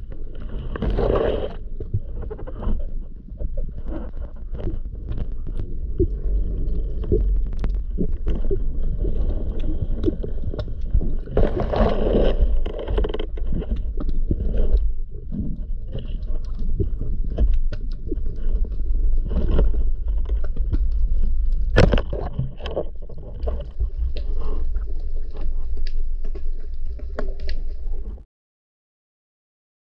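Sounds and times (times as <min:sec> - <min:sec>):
low underwater rumble: 0:00.0 - 0:28.2
underwater clicks and crackles: 0:00.0 - 0:28.2.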